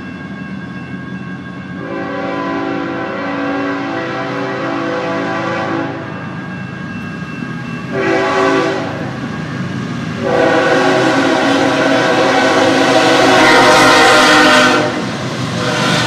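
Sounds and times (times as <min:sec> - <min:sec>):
locomotive air horn blasts: 0:01.8 - 0:06.1, 0:07.9 - 0:09.1, 0:10.2 - 0:16.0.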